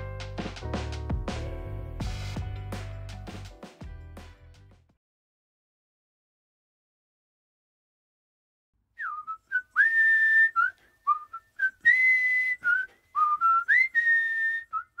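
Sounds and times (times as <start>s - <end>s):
person whistling a tune: 9.0s - 15.0s.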